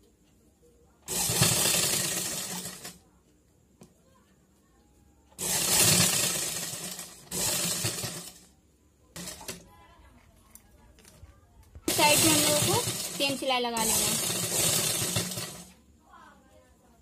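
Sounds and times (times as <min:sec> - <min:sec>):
sewing machine stitching: 0:01.0 - 0:03.0, 0:05.4 - 0:08.5, 0:09.1 - 0:09.6, 0:11.9 - 0:15.8.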